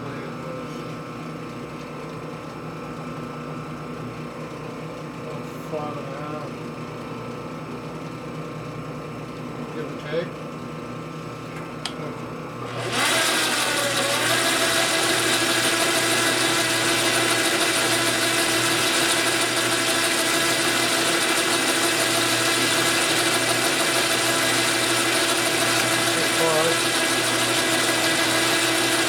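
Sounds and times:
motor and gear whine: 0:00.0 - 0:29.0
metal lathe running: 0:12.6 - 0:29.0.

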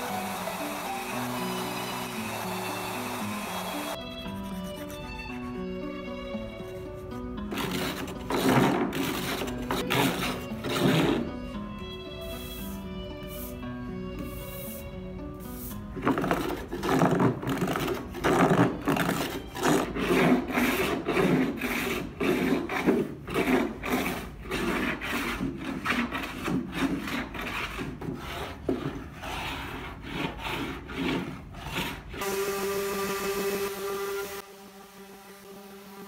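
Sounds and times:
orbital sander humming: 0:00.0 - 0:05.5, 0:32.2 - 0:36.0
hand plane shaving wood: 0:00.0 - 0:34.4.

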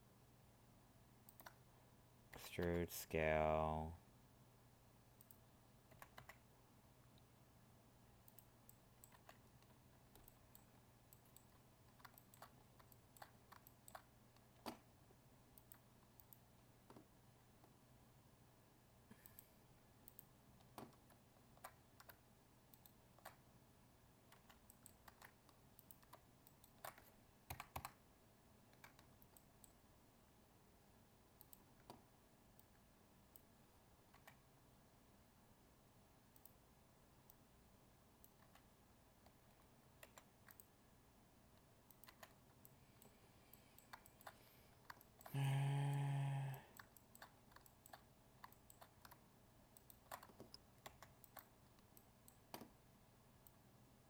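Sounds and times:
keyboard and mouse clicks: 0:01.2 - 0:01.7, 0:05.2 - 0:06.5, 0:08.2 - 0:14.9, 0:15.5 - 0:17.8, 0:19.1 - 0:23.5, 0:24.2 - 0:28.0, 0:28.7 - 0:29.8, 0:31.4 - 0:34.5, 0:38.2 - 0:40.8, 0:41.5 - 0:52.8.

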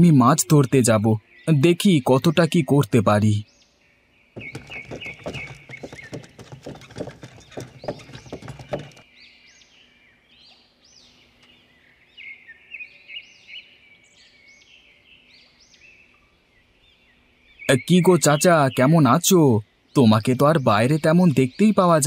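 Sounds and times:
birds chirping: 0:00.0 - 0:22.0
hooves clip-clopping: 0:04.4 - 0:09.0.

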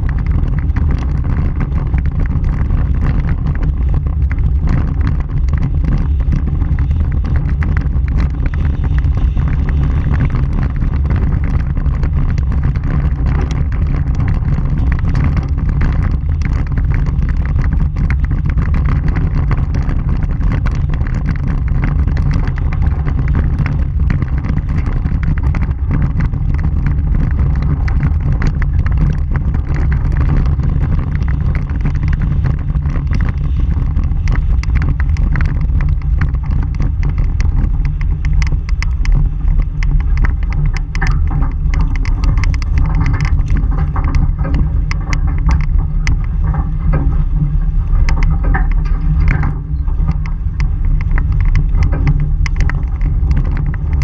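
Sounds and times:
gravel clicks: 0:00.0 - 0:54.0
tyres rumbling on gravel road: 0:00.0 - 0:54.0
wind on microphone: 0:00.0 - 0:54.0.

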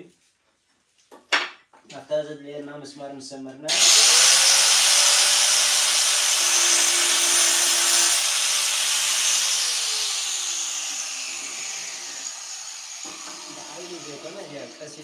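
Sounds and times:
angle grinder cutting tile: 0:03.7 - 0:15.0
grinder spinning down: 0:03.7 - 0:15.0.

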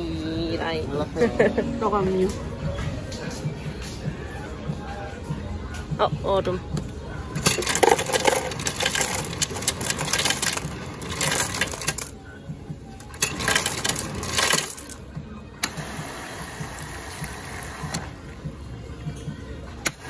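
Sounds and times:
ice cubes clattering into cup: 0:07.4 - 0:12.1, 0:13.1 - 0:15.0.

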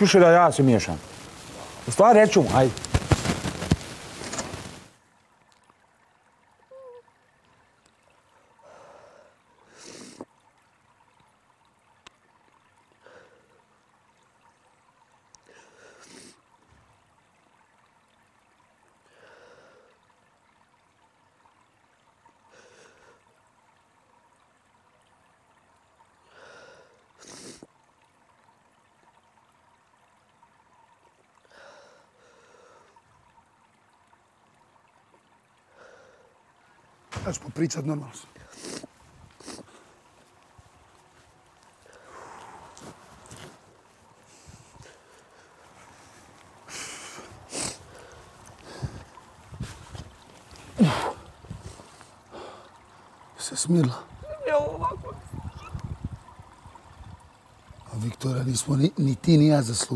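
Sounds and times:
woman crying quietly: 0:06.7 - 0:07.1
sniffles: 0:38.4 - 0:39.8, 0:46.7 - 0:48.8
shaky breaths: 0:41.8 - 0:43.6, 0:44.2 - 0:52.7.

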